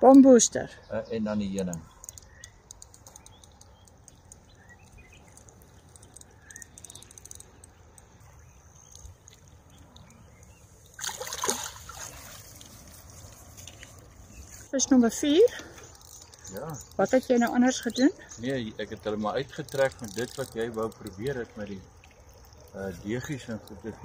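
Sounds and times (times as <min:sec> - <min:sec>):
small ticks: 0:01.5 - 0:11.1, 0:12.5 - 0:24.0
fish thrashing in water: 0:05.4 - 0:14.3.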